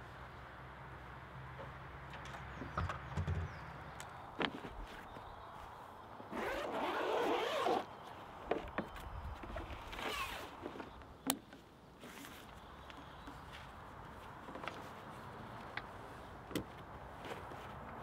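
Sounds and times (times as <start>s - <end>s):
zipper pulled open: 6.3s - 7.9s, 9.9s - 10.8s.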